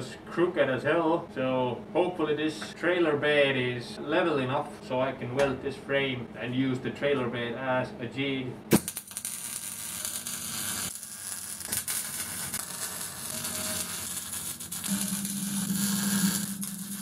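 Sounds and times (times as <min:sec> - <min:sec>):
welding arc crackling: 0:08.7 - 0:17.0.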